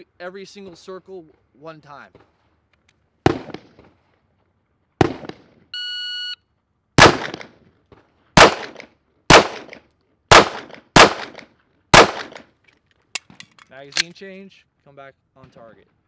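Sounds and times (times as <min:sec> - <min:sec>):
pistol shots: 0:03.2 - 0:03.9, 0:05.0 - 0:05.5, 0:07.0 - 0:07.6, 0:08.4 - 0:12.5
shot timer beep: 0:05.8 - 0:06.4
sharp crack: 0:07.0 - 0:07.6, 0:08.4 - 0:12.5.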